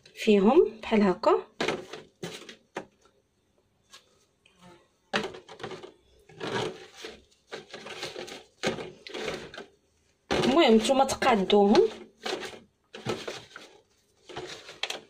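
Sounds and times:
plastic container crinkling: 1.5 - 3.2, 5.1 - 15.0
papery pastry rustling: 5.2 - 15.0.

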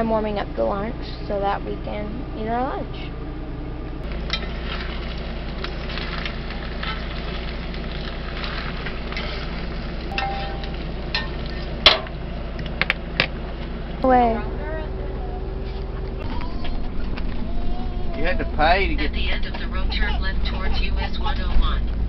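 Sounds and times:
steady low hum: 0.0 - 22.0
food sizzling and crackling: 4.0 - 11.8.

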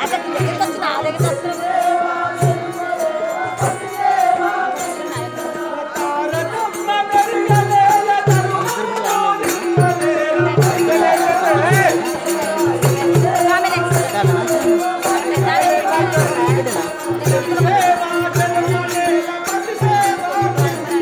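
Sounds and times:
hand drum beating: 7.5 - 21.0.

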